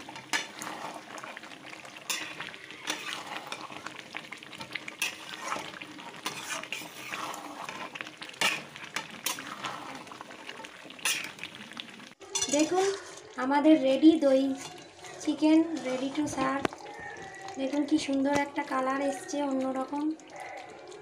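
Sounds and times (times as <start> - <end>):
curry sizzling: 0.0 - 21.0
spoon scraping and knocking pan: 2.0 - 3.9, 4.6 - 9.8, 12.2 - 13.2.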